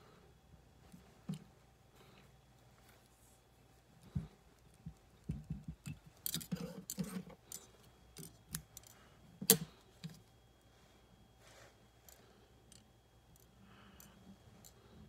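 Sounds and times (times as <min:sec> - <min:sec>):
tools clicking and rustling: 0:05.2 - 0:10.2.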